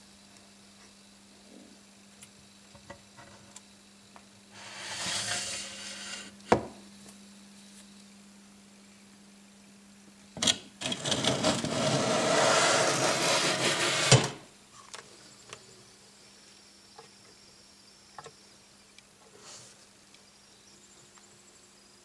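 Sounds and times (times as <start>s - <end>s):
loud scraping rasp: 4.6s - 6.4s, 11.0s - 14.4s.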